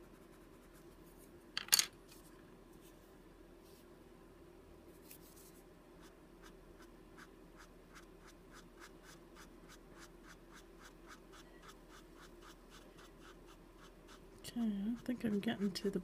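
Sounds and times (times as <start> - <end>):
colored pencil scratching on card: 6.0 - 14.2.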